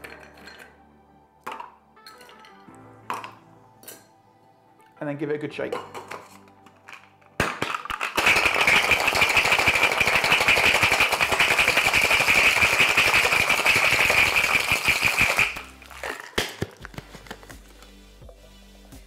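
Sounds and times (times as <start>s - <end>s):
metal tins knocking: 5.7s - 8.2s
ice rattling in metal cocktail shaker: 8.0s - 16.4s.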